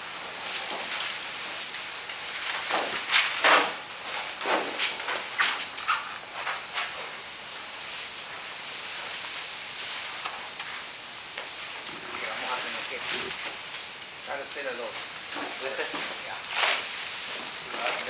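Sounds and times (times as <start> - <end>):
steady hiss: 0.0 - 18.0
vinyl sheet rustling: 2.2 - 7.1.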